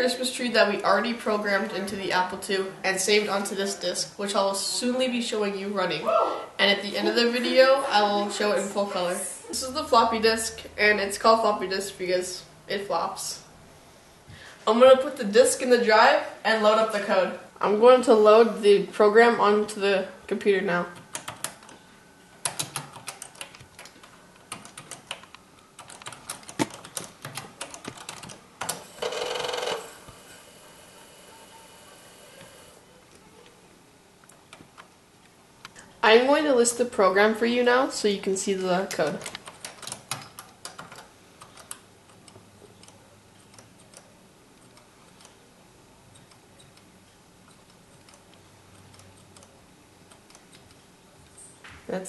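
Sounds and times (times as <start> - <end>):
low steady hum: 0.0 - 52.0
keyboard keys clicking: 20.9 - 21.8, 22.4 - 28.8.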